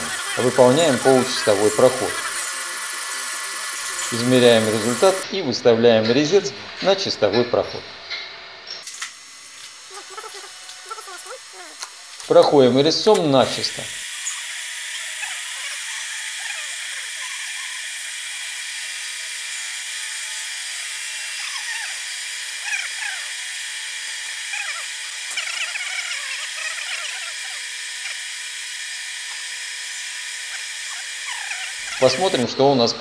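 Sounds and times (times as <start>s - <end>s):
squeaky cutting chirps: 0.0s - 5.3s, 9.9s - 12.5s, 13.1s - 18.0s, 21.2s - 22.0s, 22.6s - 23.4s, 24.5s - 28.3s, 30.5s - 32.4s
machine whine: 0.0s - 32.6s.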